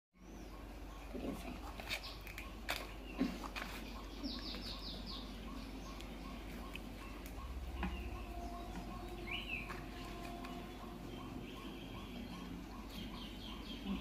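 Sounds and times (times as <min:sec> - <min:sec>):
small bird chirping: 0:00.2 - 0:14.0.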